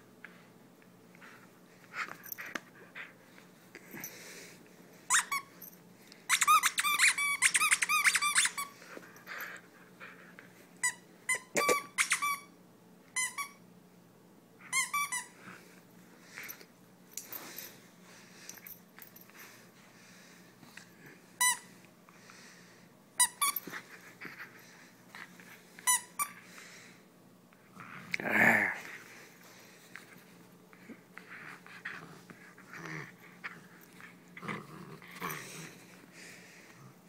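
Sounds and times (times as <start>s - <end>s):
dog toy squeaking: 5.1s - 5.5s, 6.3s - 8.7s, 10.8s - 12.5s.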